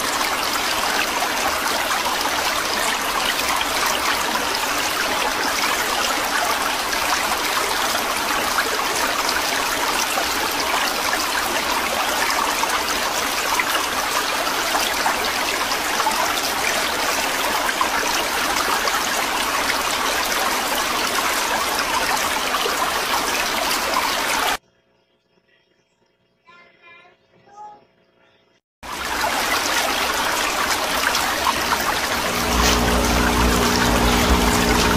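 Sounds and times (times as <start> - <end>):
aquarium filters bubbling: 28.8 - 34.9.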